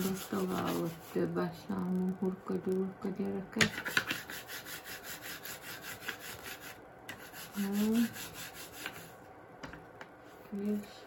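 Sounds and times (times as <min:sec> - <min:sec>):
hands rolling paste: 0:00.0 - 0:01.4, 0:03.6 - 0:09.1.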